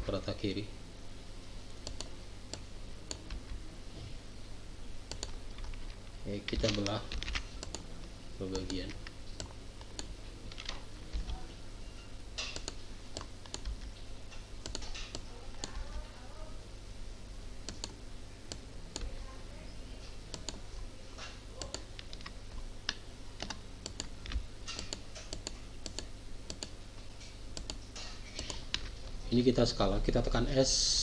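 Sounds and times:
keyboard and mouse clicking: 1.8s - 3.6s, 5.1s - 7.9s, 8.5s - 11.4s, 12.4s - 14.0s, 14.6s - 16.0s, 17.6s - 19.1s, 20.3s - 20.6s, 21.6s - 26.8s, 27.5s - 28.9s.

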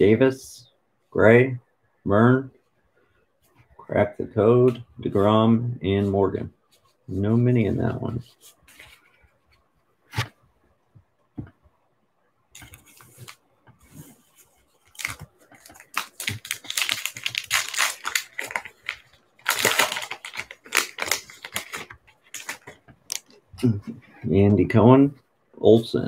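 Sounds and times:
wrapper crinkling and tearing: 14.8s - 23.3s.

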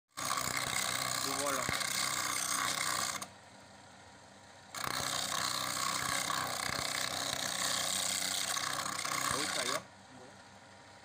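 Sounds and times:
wood grinding on abrasive disc: 0.1s - 3.3s, 4.7s - 9.9s.

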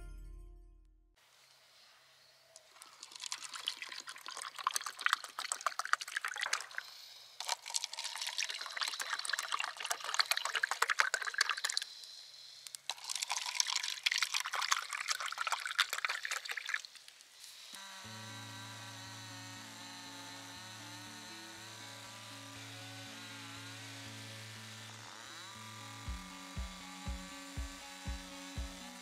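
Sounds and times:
tea pouring into paper cups: 2.6s - 11.9s, 12.7s - 17.4s.

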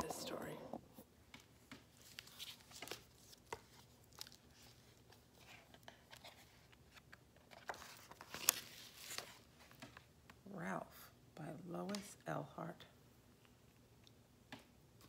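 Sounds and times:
paper rustling: 1.7s - 10.1s.

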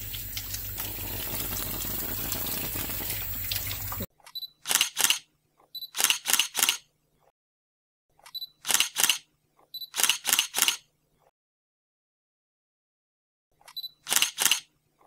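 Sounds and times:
camera shutter clicks: 4.6s - 5.3s, 5.9s - 6.9s, 8.6s - 9.2s, 9.9s - 10.8s, 14.0s - 14.7s.

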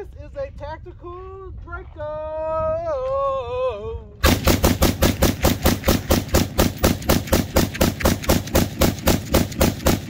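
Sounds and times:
rapid gunshots: 4.2s - 10.0s.

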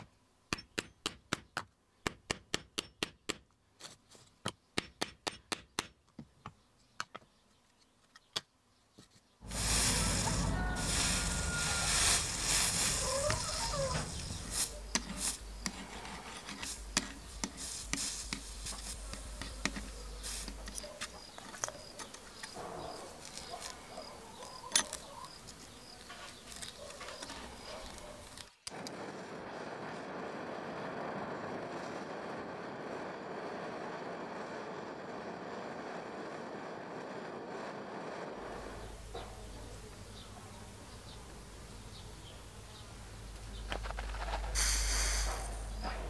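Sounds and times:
gas torch hissing: 9.4s - 23.6s, 27.5s - 39.1s, 44.4s - 46.0s.

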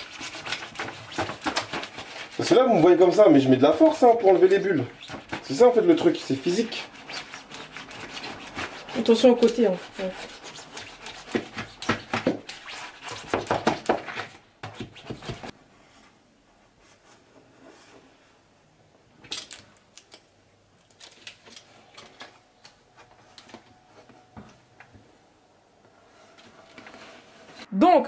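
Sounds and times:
vinyl film rubbing and crackling: 0.0s - 15.6s.

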